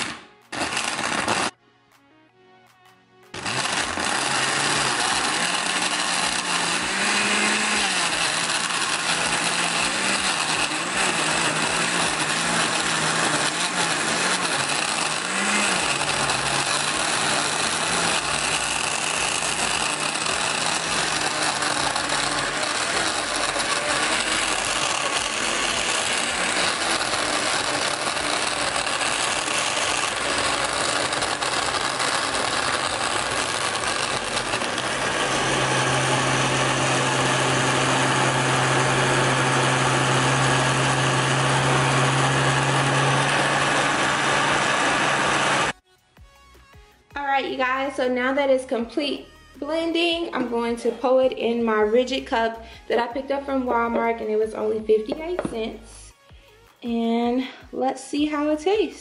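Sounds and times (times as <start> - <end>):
blender blades churning ice: 0.0 - 1.6, 3.3 - 45.8
blender motor running: 0.0 - 1.6, 3.3 - 45.8.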